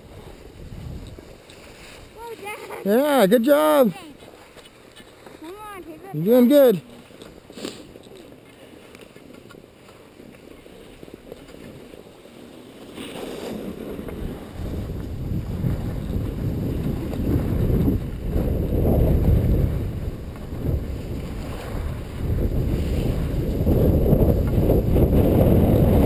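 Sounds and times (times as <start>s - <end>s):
wind buffeting microphone: 0.0s - 3.0s, 13.3s - 26.0s.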